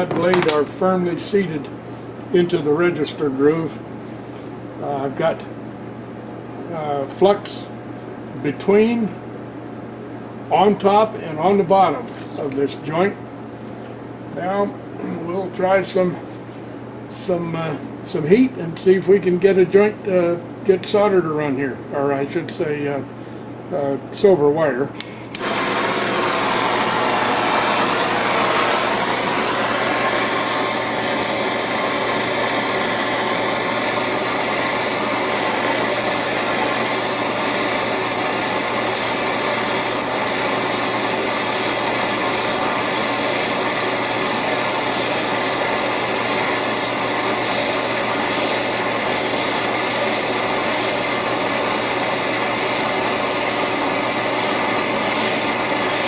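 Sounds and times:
gas torch flame hissing: 25.0s - 56.0s.

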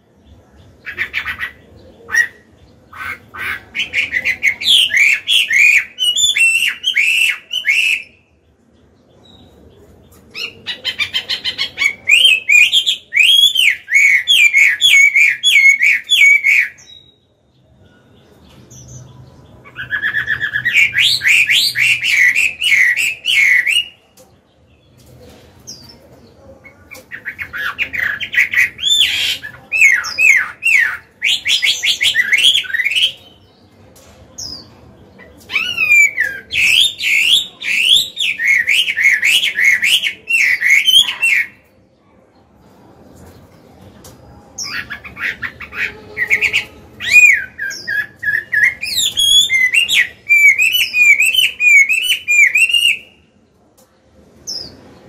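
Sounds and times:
bird singing whistled notes: 4.3s - 8.3s, 11.9s - 19.0s, 46.2s - 53.2s.

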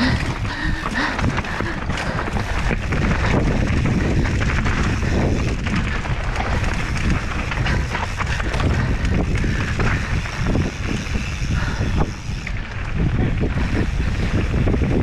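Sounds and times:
bike rattling over rough ground: 0.0s - 15.0s
wind on microphone: 0.0s - 15.0s.

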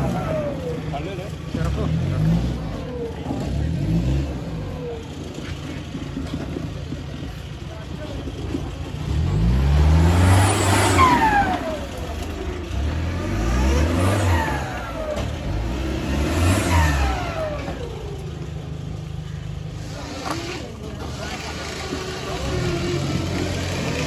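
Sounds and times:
engine revving hard: 0.0s - 5.1s, 9.0s - 18.2s, 19.7s - 24.0s.

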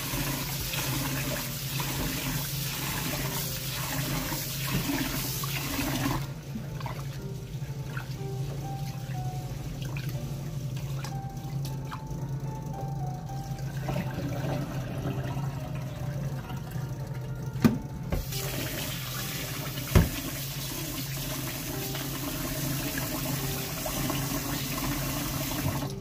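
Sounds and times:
tap running into pot: 19.9s - 20.2s.

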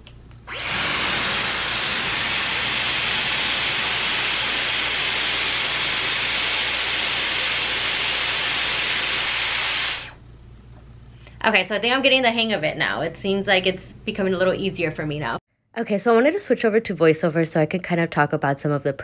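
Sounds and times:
hair styler blowing air: 0.4s - 10.2s.

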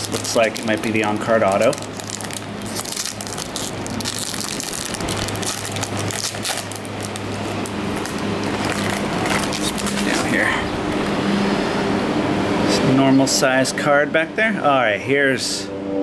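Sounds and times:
foil wrapper crinkling: 0.0s - 10.4s
low hum: 1.7s - 16.0s.

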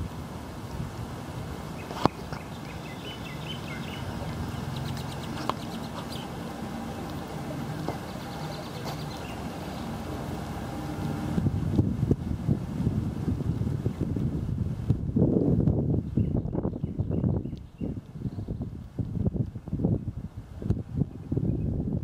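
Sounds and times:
wind rumble on microphone: 0.0s - 22.0s
bird chirps: 2.1s - 6.4s, 7.9s - 10.0s.

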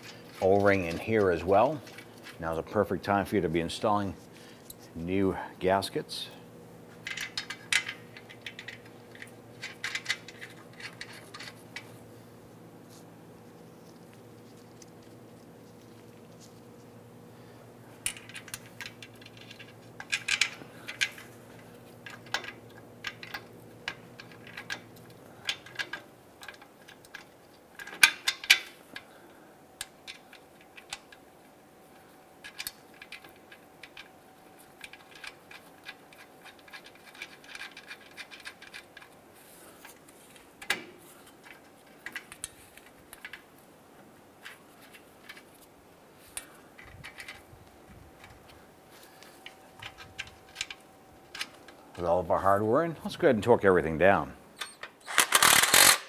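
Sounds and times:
low steady hum: 0.0s - 55.0s
metallic clicks and scrapes of bolts: 7.0s - 11.9s, 18.0s - 29.0s, 32.4s - 43.5s, 54.6s - 56.0s.

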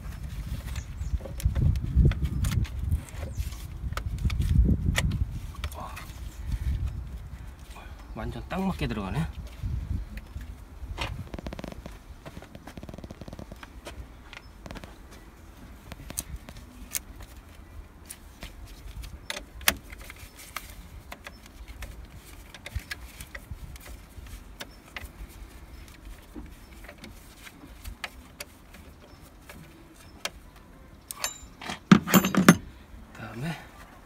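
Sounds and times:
tools clicking and clinking: 31.0s - 32.7s.

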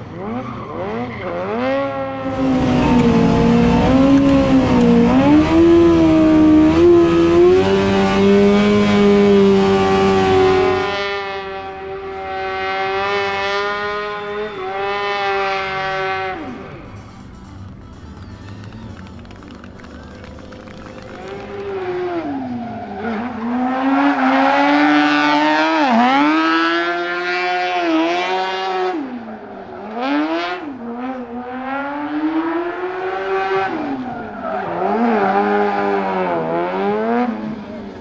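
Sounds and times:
motorbike engine revving: 0.2s - 29.2s.

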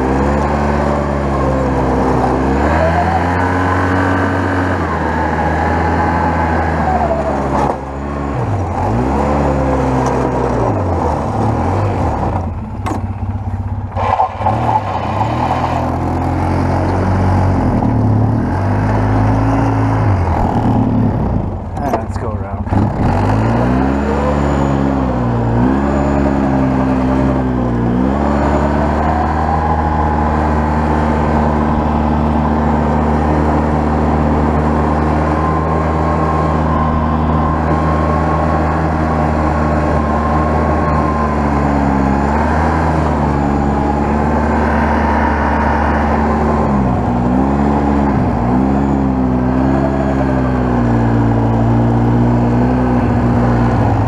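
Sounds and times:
atv engine running: 0.0s - 14.9s.

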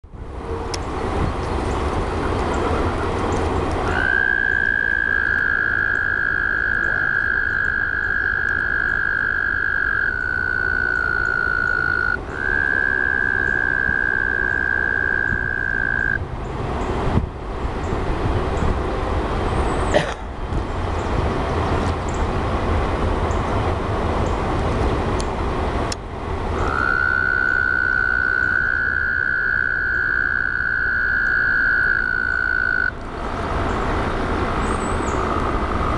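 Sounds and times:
frogs trilling: 3.8s - 16.2s, 26.6s - 33.0s, 34.5s - 35.9s.

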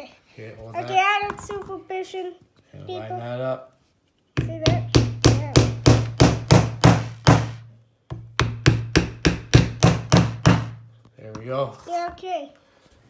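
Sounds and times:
hammer striking nails: 4.4s - 11.5s.

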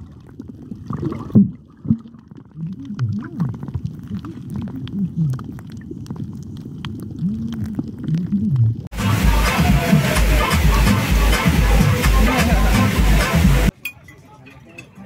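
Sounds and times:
low warbling underwater tones: 0.0s - 13.7s
electronic dance music: 8.9s - 13.7s.

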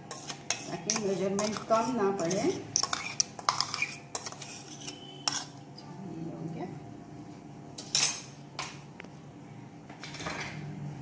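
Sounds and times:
spoon scraping a jar: 0.0s - 5.6s.

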